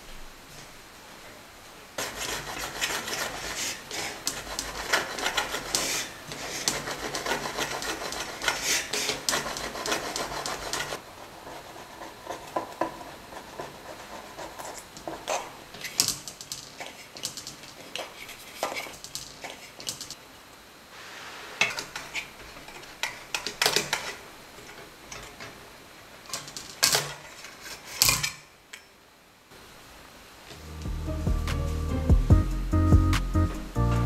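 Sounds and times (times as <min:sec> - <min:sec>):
metal spatula scraping cake pan: 0:02.0 - 0:11.0.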